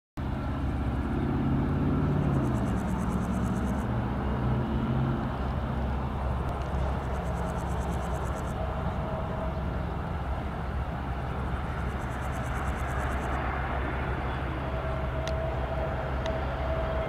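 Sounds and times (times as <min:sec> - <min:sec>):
jet airliner engines rumbling: 0:00.2 - 0:17.0.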